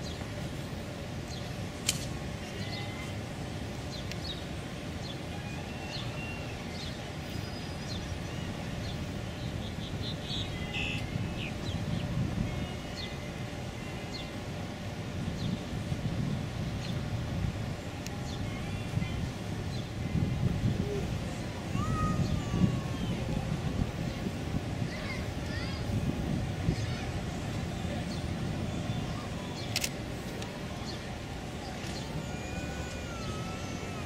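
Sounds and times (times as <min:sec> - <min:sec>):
sharp click: 0:01.8 - 0:02.2, 0:29.6 - 0:30.5
small birds chirping: 0:03.8 - 0:14.4
steady low rumble: 0:06.6 - 0:32.2.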